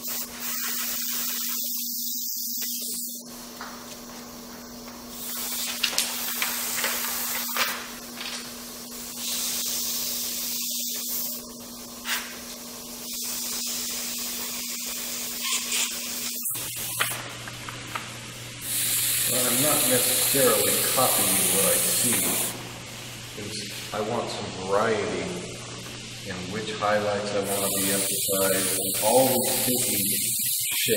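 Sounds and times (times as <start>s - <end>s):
airbrush hissing bursts: 0.0s - 3.4s, 5.1s - 7.6s, 8.8s - 17.1s, 18.6s - 23.2s, 27.4s - 30.9s
steady low hum: 0.0s - 30.9s.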